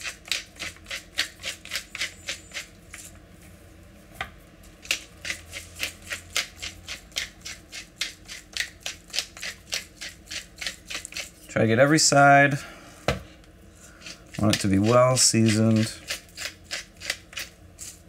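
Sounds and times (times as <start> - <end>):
pepper mill grinding: 0.0 - 3.1, 4.8 - 11.5, 13.9 - 18.0.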